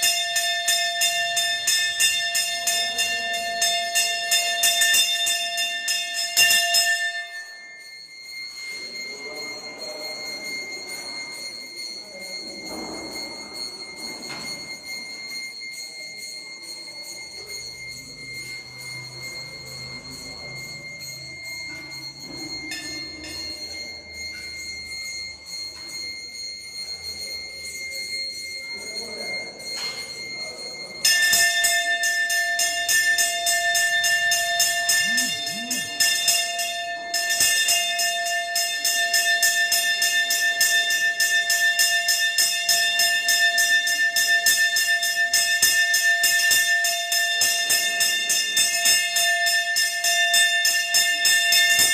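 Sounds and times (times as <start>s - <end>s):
hand bell ringing rapidly: 30.9s - 51.9s
faint low murmuring: 34.5s - 36.3s.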